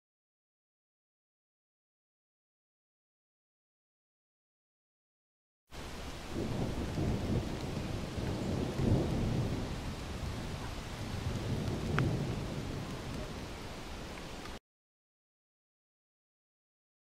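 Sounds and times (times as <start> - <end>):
waterfall roaring: 5.8 - 14.6
faint sharp tick: 11.6 - 12.2.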